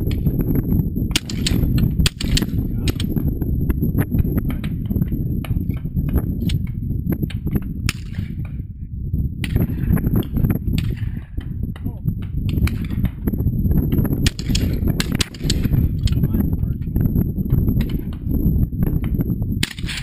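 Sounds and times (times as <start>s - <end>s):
wind rumbling on microphone: 0.0s - 20.0s
shotgun shots: 1.1s - 3.2s, 7.3s - 8.5s, 10.8s - 11.4s, 12.5s - 13.2s, 14.2s - 16.2s, 19.6s - 20.0s.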